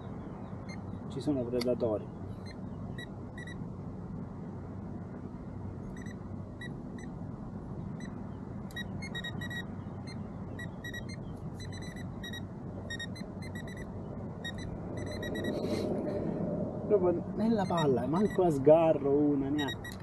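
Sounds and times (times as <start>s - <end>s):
wind: 0.0s - 20.0s
short high electronic beeps: 8.7s - 9.7s, 10.6s - 15.8s, 17.6s - 18.5s, 19.6s - 20.0s
low rumble of water: 14.0s - 17.5s.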